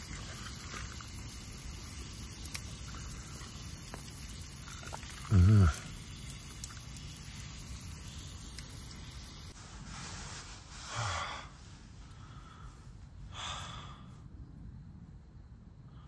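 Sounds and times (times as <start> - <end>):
faint steady hiss: 0.0 - 16.0
person breathing out: 12.2 - 14.2.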